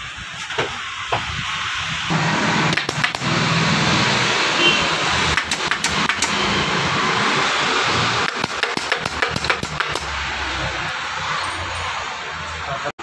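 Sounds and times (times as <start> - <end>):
pneumatic staple gun firing: 2.7 - 3.4, 5.3 - 6.4, 8.2 - 10.2.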